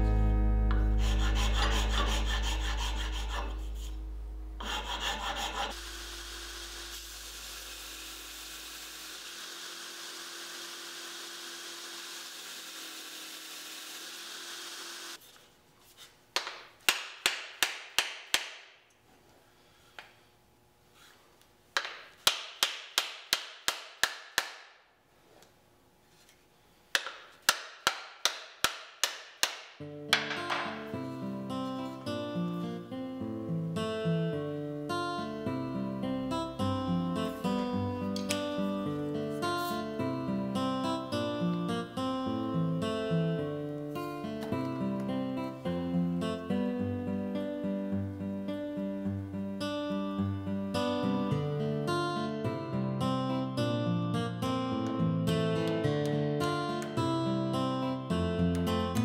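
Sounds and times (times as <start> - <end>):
steady hum and hiss: 0.0 - 9.3, 15.2 - 55.5
abrasive rubbing on wooden handle: 0.8 - 5.8.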